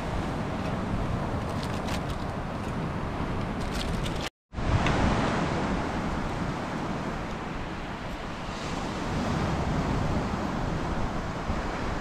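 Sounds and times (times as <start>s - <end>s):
wind on microphone: 0.0s - 12.0s
surf washing on beach: 4.6s - 12.0s.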